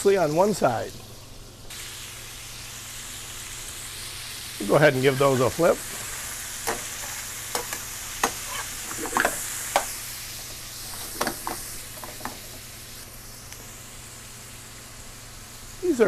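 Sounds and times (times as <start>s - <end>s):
shrimp sizzling in oil: 0.0s - 16.0s
metal spatula scraping pan: 6.7s - 9.9s.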